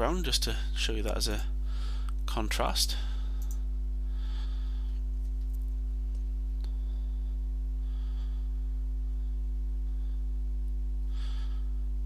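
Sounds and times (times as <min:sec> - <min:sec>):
electrical mains hum: 0:00.0 - 0:12.0
man breathing: 0:01.6 - 0:02.2, 0:02.9 - 0:05.1, 0:06.6 - 0:10.4, 0:11.0 - 0:12.0
click: 0:03.4 - 0:03.6.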